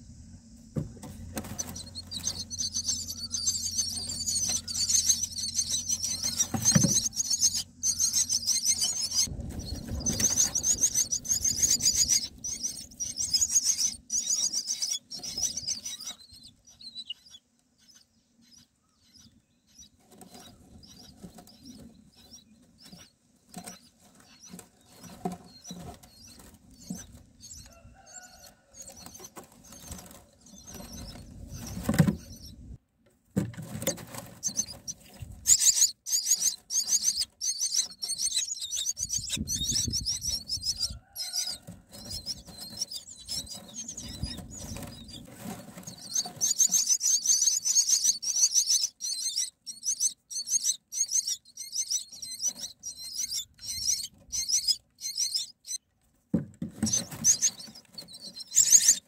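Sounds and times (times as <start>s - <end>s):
scratchy rustling in nest: 1.0s - 17.4s, 19.7s - 32.6s, 33.4s - 55.8s, 56.7s - 59.0s
nestlings squeaky begging chorus: 1.4s - 23.1s, 34.4s - 55.8s, 56.8s - 59.0s.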